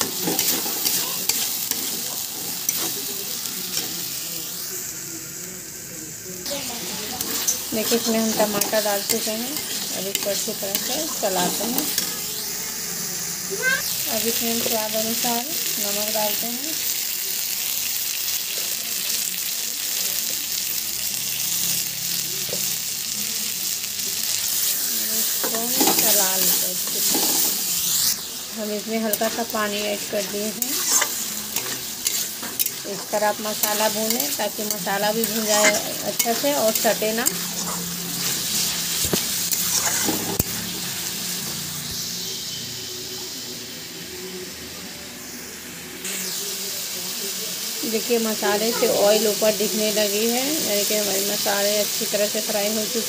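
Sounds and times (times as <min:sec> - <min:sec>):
spoon stirring in pan: 0:00.0 - 0:03.1, 0:07.0 - 0:12.2, 0:25.3 - 0:40.6
masala sizzling in hot oil: 0:00.0 - 0:53.0.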